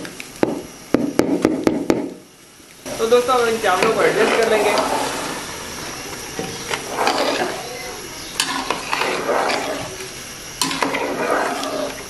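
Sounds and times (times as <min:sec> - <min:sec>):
spoon stirring rice in liquid: 0:08.3 - 0:10.0.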